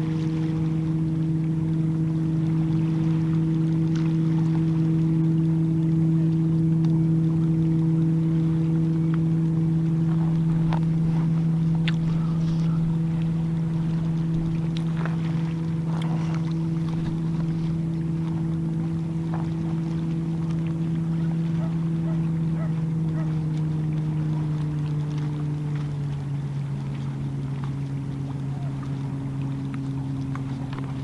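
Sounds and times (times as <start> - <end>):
boat engine droning: 0.0 - 31.0.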